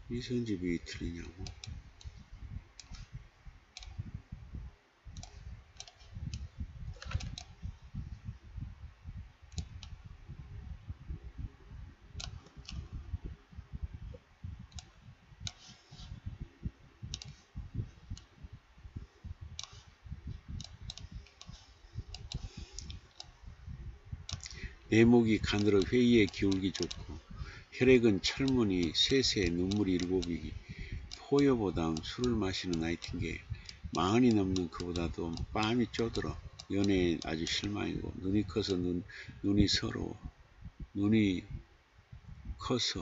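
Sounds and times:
mouse and keyboard clicks: 5.2s - 7.6s, 12.2s - 12.8s, 14.7s - 16.1s, 17.1s - 17.4s, 19.6s - 19.9s, 20.6s - 23.4s, 24.3s - 24.6s, 25.3s - 27.2s, 28.2s - 37.8s.

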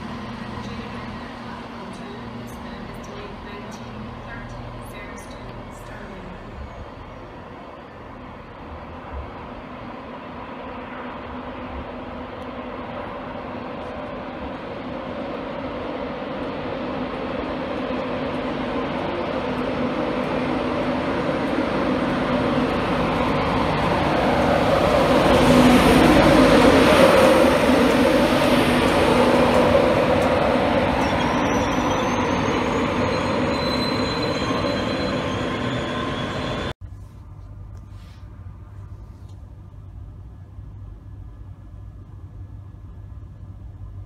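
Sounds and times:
train passing: 0.0s - 36.8s
wheel and brake squeals: 30.9s - 36.7s.

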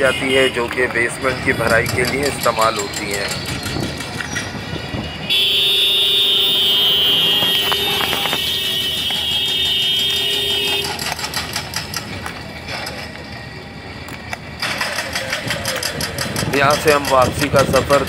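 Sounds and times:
street traffic noise: 0.0s - 18.0s
vehicle horn blast: 5.2s - 11.0s.

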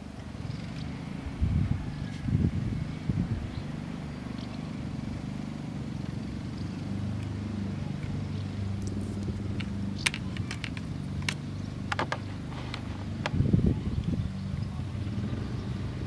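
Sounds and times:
plastic clicks and taps: 9.6s - 13.4s.

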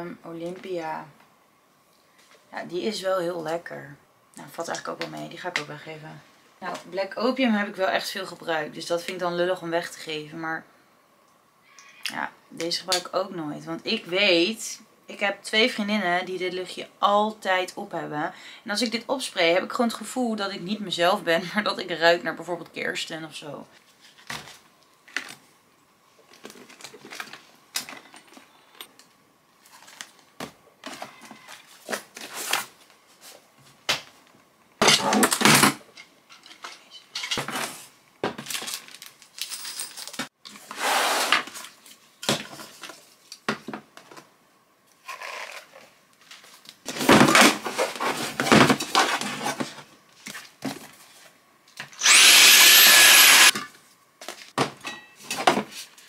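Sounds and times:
rustling and scraping: 23.8s - 28.8s, 29.6s - 34.2s, 36.0s - 44.3s, 44.9s - 51.5s, 53.6s - 56.0s.

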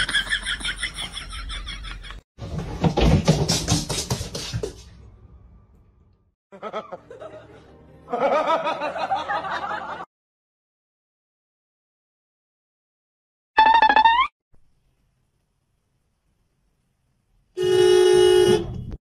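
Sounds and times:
laughter: 0.0s - 2.2s, 6.5s - 10.1s
music: 3.4s - 9.9s.

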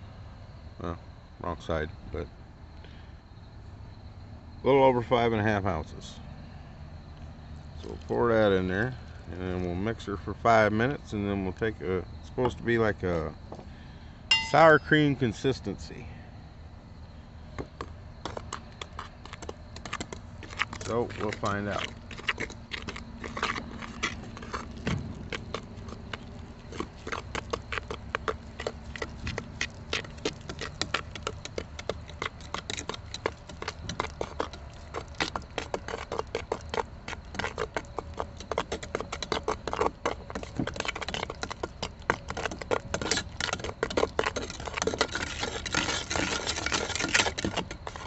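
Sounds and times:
rod scraping a metal bucket: 42.3s - 48.0s.

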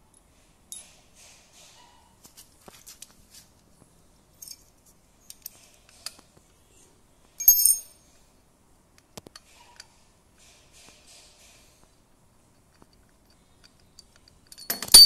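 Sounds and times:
light metallic clicks and clinks: 4.4s - 6.3s, 7.4s - 8.2s, 12.5s - 15.0s
ringing metal clink: 7.4s - 8.0s, 14.4s - 15.0s.

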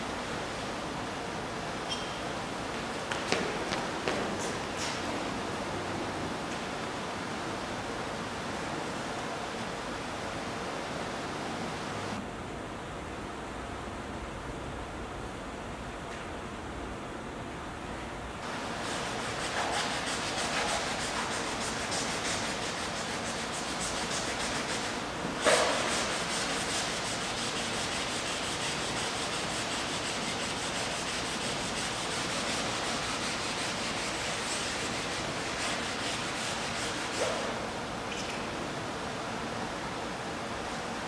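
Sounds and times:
sanding canvas: 18.4s - 37.6s.

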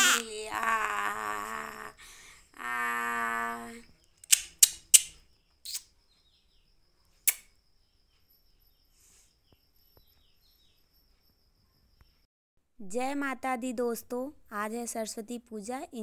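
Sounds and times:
infant crying: 0.0s - 2.0s
sharp loud clicks: 4.2s - 5.9s, 7.3s - 7.5s.

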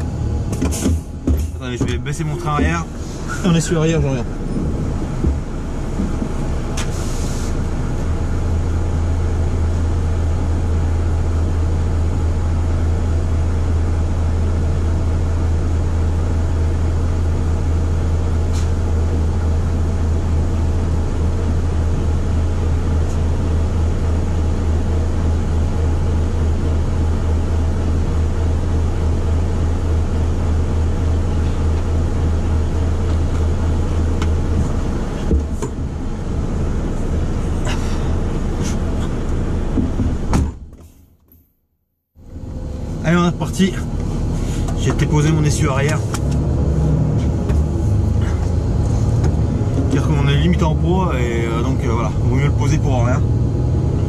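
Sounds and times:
diesel truck engine drone: 0.0s - 40.8s, 42.2s - 54.0s
air suspension hiss: 6.8s - 7.6s.

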